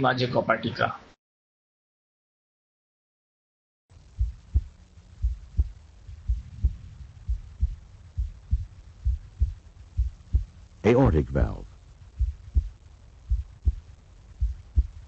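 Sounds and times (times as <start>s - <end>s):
faint low hum: 3.9s - 15.0s
heartbeat thuds: 4.0s - 10.7s, 12.0s - 15.0s.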